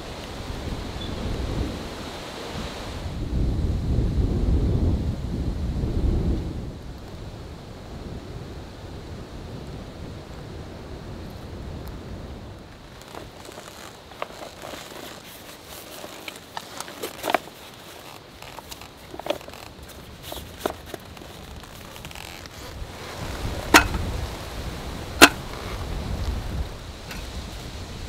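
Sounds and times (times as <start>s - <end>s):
wind rumbling on microphone: 0.0s - 28.0s
clicks knocks and rustles: 12.9s - 22.8s, 23.7s - 24.1s, 25.2s - 25.4s
camp table sharp clacks: 13.0s - 21.4s, 23.6s - 24.1s, 25.2s - 25.5s, 27.1s - 27.3s.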